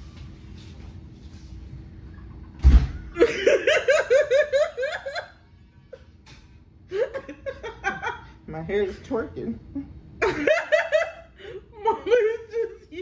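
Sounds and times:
woman laughing: 0:03.2 - 0:05.4, 0:06.9 - 0:08.3, 0:09.8 - 0:13.0.

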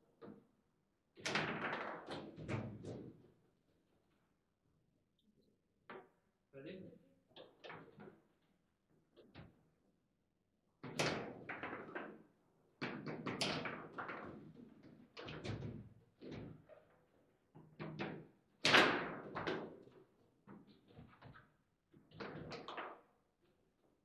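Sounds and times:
table football plastic clacks: 0:17.6 - 0:23.1.

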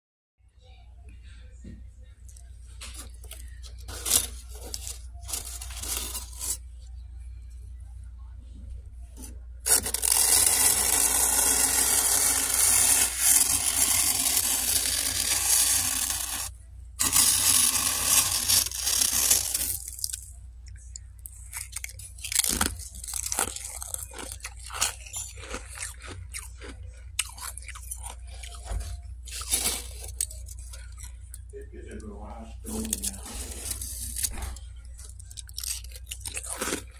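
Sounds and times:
freezer frost crackling: 0:02.2 - 0:06.8, 0:09.1 - 0:36.9
scratchy scraping of frost: 0:02.9 - 0:06.6, 0:09.2 - 0:20.2, 0:29.3 - 0:30.8, 0:32.7 - 0:34.6.

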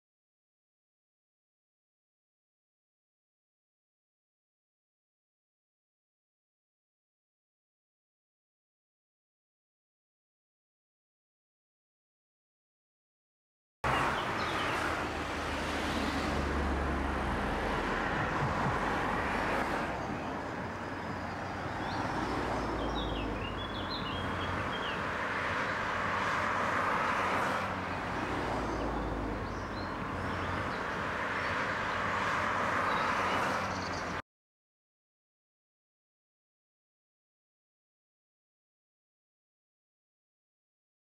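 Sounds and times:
cars passing: 0:13.8 - 0:34.2
road traffic: 0:13.8 - 0:34.2
bird chirps: 0:20.0 - 0:25.1.

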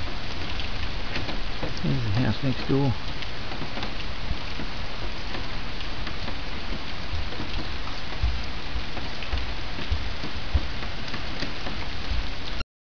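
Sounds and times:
rain pattering: 0:00.0 - 0:12.6
low thuds: 0:06.3 - 0:12.3.

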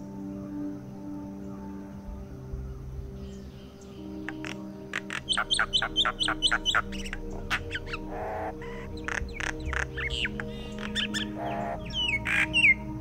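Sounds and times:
myna sharp repeated notes: 0:04.2 - 0:13.0.

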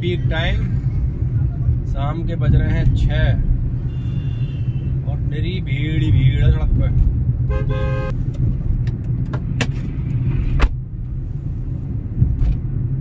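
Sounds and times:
car engine and road rumble: 0:00.0 - 0:13.0
vehicle horn honk: 0:03.9 - 0:04.9, 0:07.5 - 0:08.1.

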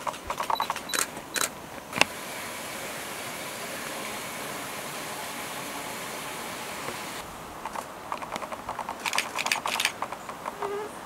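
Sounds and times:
sharp clicks: 0:00.0 - 0:02.1, 0:07.6 - 0:10.8
outdoor background hiss: 0:00.0 - 0:11.0.

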